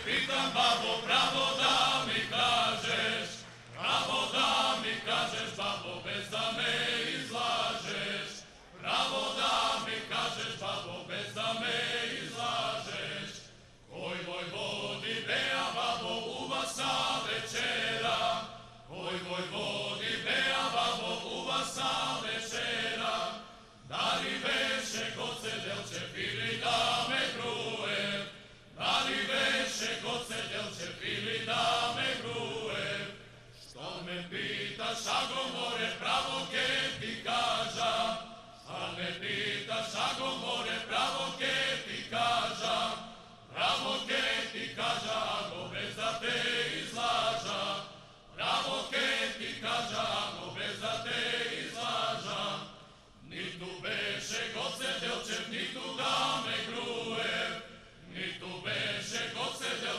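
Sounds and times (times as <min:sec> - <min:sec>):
male vocal ensemble singing: 0:00.0 - 0:59.9.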